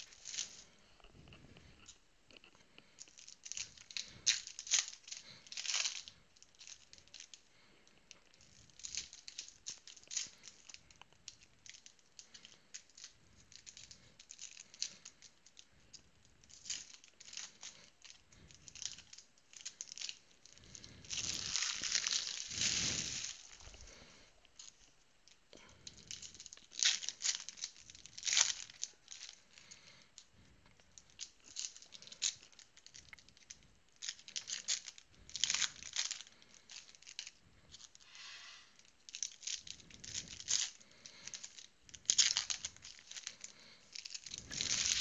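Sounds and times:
card wrappers tearing and crinkling: 16.6 - 24.9, 25.9 - 30.0, 31.1 - 38.4, 39.1 - 45.0.

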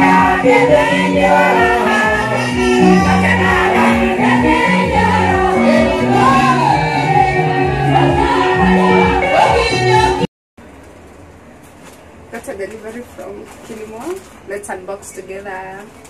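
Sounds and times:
band accompaniment with bass: 0.0 - 10.3
women singing gospel: 0.0 - 10.3.

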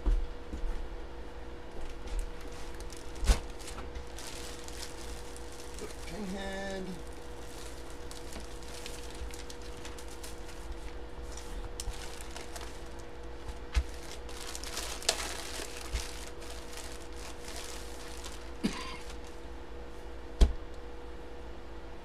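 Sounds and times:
plastic sleeve crinkling: 1.9 - 19.4.

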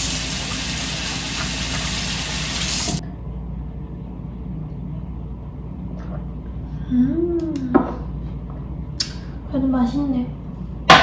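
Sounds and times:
tap running water: 0.0 - 3.0.

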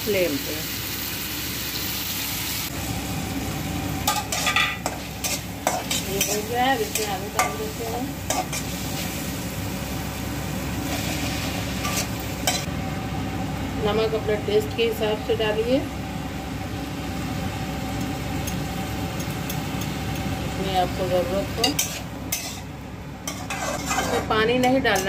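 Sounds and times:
vegetables sizzling in oil: 0.0 - 25.0
metal spatula scraping pan: 21.6 - 22.7, 23.3 - 25.0.

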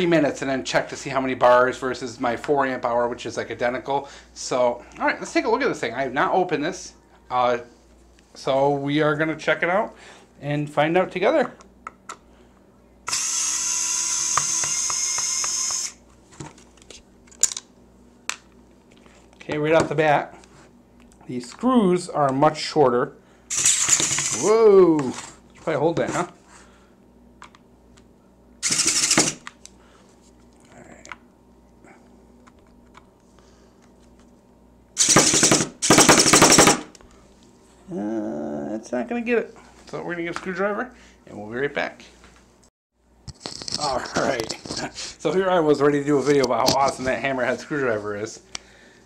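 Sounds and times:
cordless screwdriver motor: 13.1 - 16.0, 23.5 - 24.5, 28.6 - 29.5, 35.0 - 36.6
screwdriver chattering clatter: 28.6 - 29.5.

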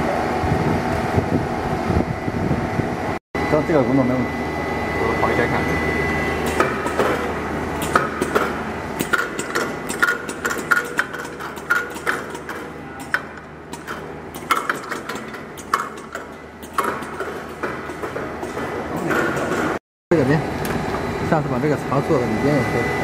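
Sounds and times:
steady machine hum: 0.0 - 23.0
sorting gates clacking: 7.8 - 19.8.

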